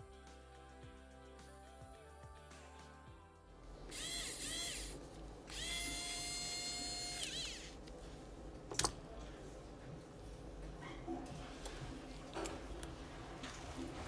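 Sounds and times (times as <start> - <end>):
electric screwdriver whining: 3.9 - 7.8.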